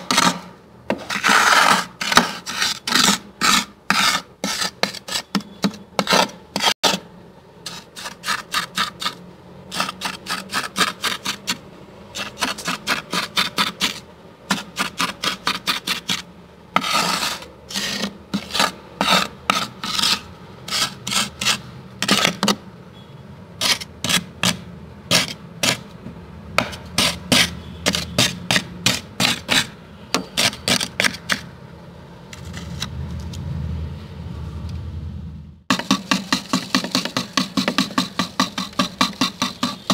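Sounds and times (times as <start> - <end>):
spoon scraping freezer frost: 0.0 - 22.6, 23.6 - 25.9, 26.9 - 31.5, 32.3 - 33.0, 35.7 - 39.9
low rumble: 32.4 - 35.7.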